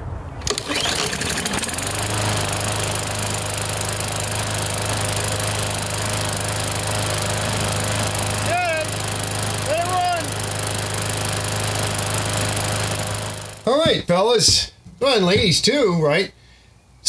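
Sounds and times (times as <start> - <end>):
lawn mower engine starting and running: 0.3 - 13.9.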